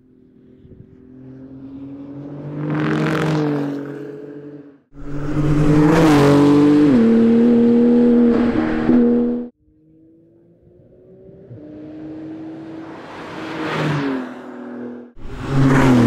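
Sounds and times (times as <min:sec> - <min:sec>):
sports car passing by: 0:00.2 - 0:16.0
car engine under power: 0:05.0 - 0:09.5.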